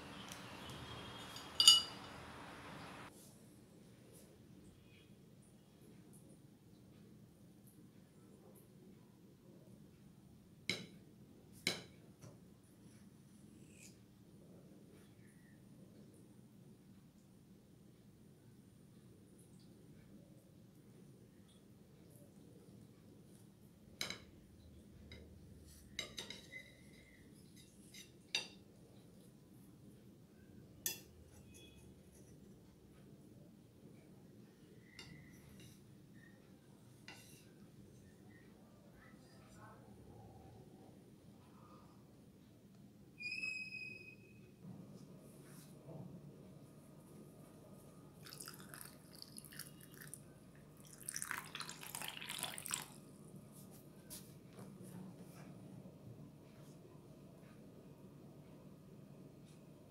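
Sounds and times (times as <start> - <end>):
metal utensils clinking on plate: 0.1 - 3.1
water pouring over ice: 48.2 - 50.2, 50.8 - 53.0.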